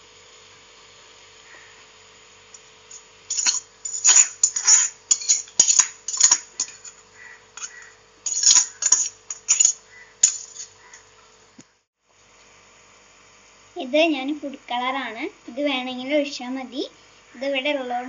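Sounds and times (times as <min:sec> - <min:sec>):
metal ladle scraping metal pot: 0:03.3 - 0:07.0, 0:07.6 - 0:10.7.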